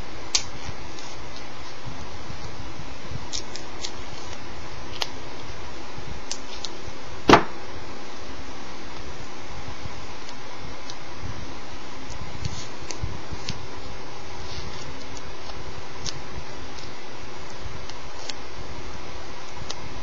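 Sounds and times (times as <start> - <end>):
sharp knock: 7.3 - 7.6.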